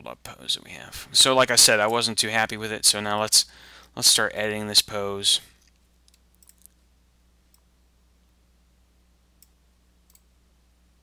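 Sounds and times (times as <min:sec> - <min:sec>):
low steady hum: 0:00.0 - 0:11.0
computer mouse clicks: 0:06.1 - 0:06.8, 0:09.4 - 0:10.3.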